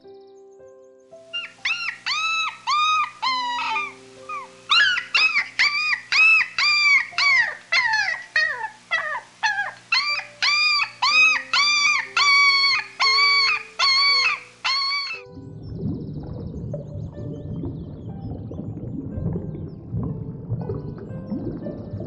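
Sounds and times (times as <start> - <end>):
soft background music: 0.0 - 22.0
puppy yelping whines: 1.3 - 15.2.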